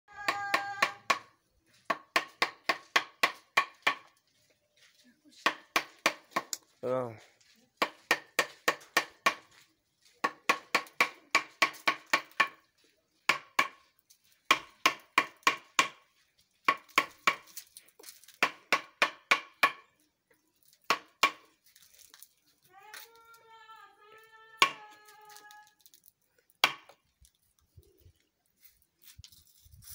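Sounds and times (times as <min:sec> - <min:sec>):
mallet striking chisel into wood: 0:00.2 - 0:01.3, 0:13.3 - 0:13.8, 0:18.4 - 0:19.9.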